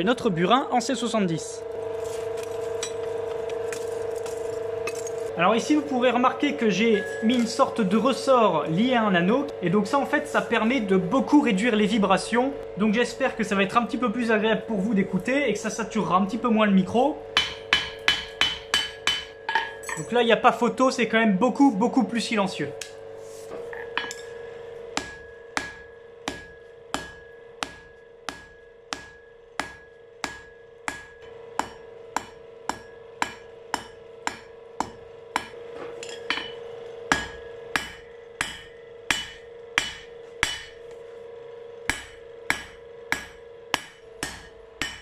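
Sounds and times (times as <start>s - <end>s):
anvil ringing: 6.8s - 7.6s, 35.4s - 40.8s
hammer blows on anvil: 17.4s - 20.1s, 25.0s - 40.8s, 41.9s - 45.0s.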